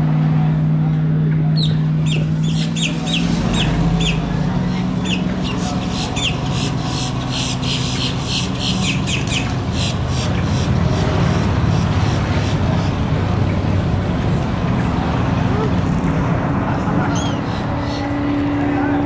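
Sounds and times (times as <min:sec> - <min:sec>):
bird harsh clicking calls: 0:04.8 - 0:11.1.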